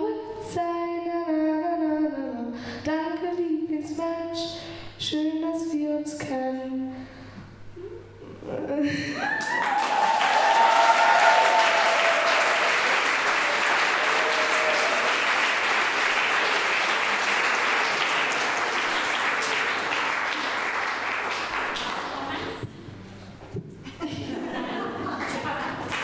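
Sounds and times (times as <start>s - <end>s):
audience applauding: 9.2s - 22.6s, 24.8s - 26.0s
voices over clapping: 9.3s - 22.6s.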